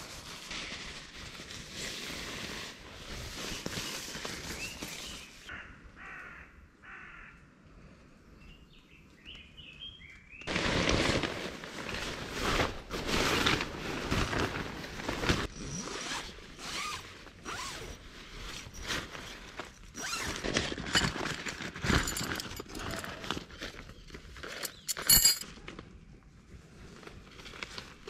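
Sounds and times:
tent fabric rustling and crumpling: 0.0s - 5.5s, 10.5s - 24.9s, 26.5s - 28.0s.

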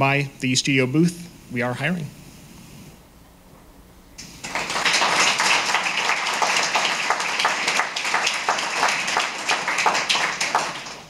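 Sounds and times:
audience applauding: 4.2s - 11.0s.

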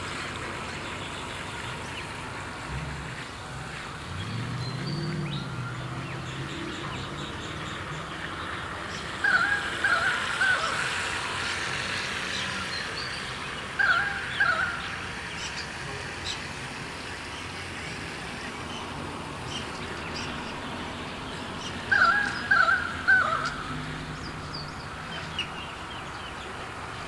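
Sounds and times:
bird calling harsh notes: 7.5s - 16.6s, 17.4s - 26.5s.

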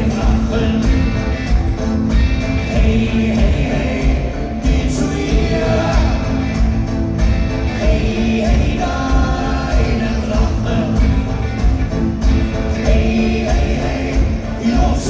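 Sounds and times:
live rock band with vocals: 0.0s - 15.0s.

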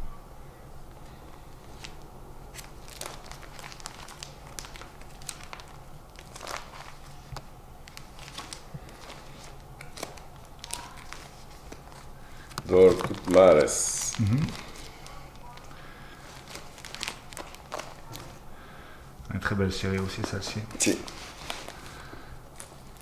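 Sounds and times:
plastic pages crinkling: 1.3s - 18.5s, 19.7s - 23.0s
sharp plastic crackles: 1.3s - 18.5s, 19.9s - 23.0s.

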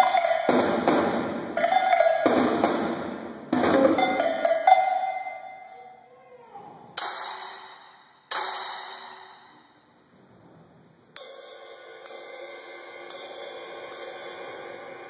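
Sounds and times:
cymbal crashes ringing: 7.0s - 10.0s, 11.2s - 15.0s
quiet ringing cymbal strokes: 7.0s - 15.0s.

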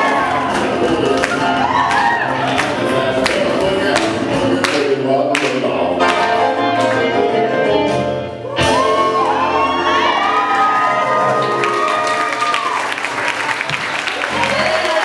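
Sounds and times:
person singing: 0.0s - 10.4s
boogie woogie dance music: 0.0s - 13.4s.

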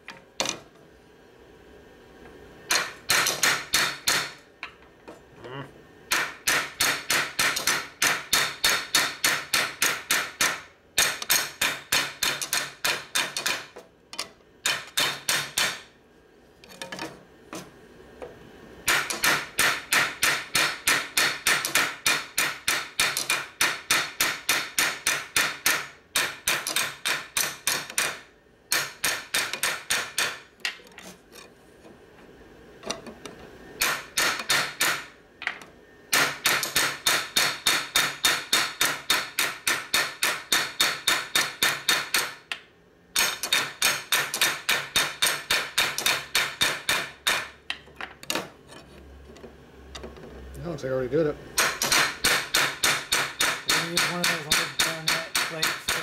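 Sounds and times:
hammer striking metal: 6.1s - 13.7s, 14.7s - 15.8s, 18.9s - 30.4s, 33.8s - 35.1s, 36.1s - 42.4s, 43.2s - 47.6s, 51.6s - 56.0s.

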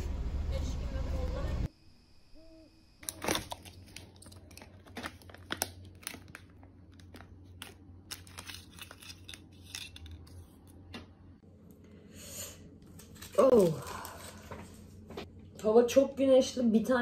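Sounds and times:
paper wrapper crinkling and tearing: 3.0s - 10.4s.

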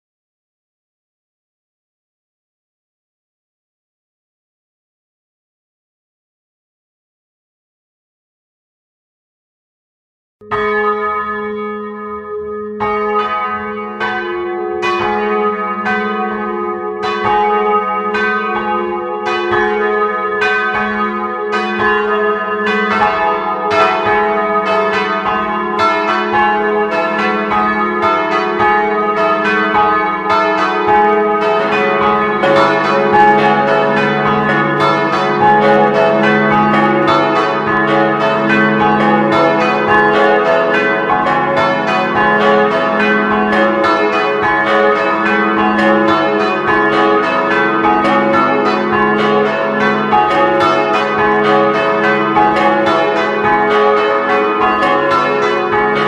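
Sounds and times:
church bells ringing: 10.4s - 56.0s
deeper bell ringing: 20.7s - 53.0s.

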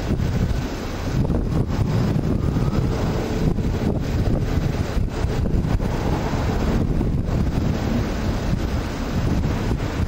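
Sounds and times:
lorries crawling: 0.0s - 10.0s
wind buffeting microphone: 0.0s - 10.0s.

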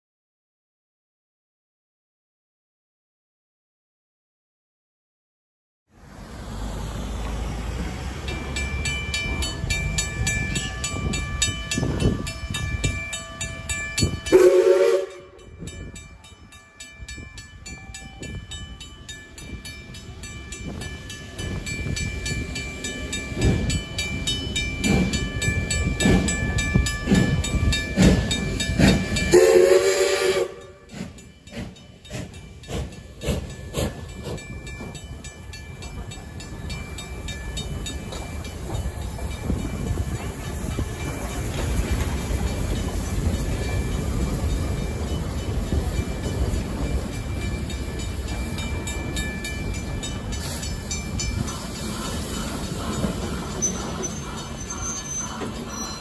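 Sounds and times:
steam locomotive exhaust beats: 6.8s - 56.0s
level-crossing bell ringing: 8.2s - 56.0s
steam whistle blasts: 14.3s - 15.4s, 29.3s - 30.9s.

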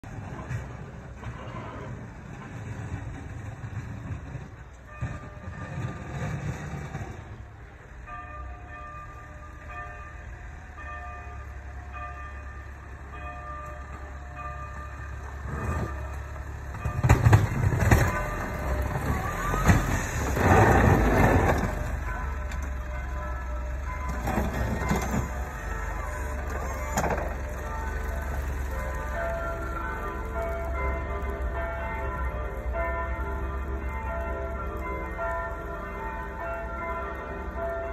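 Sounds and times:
low engine rumble: 7.2s - 37.9s
plow blade scraping snow: 15.4s - 22.1s, 23.9s - 31.7s.

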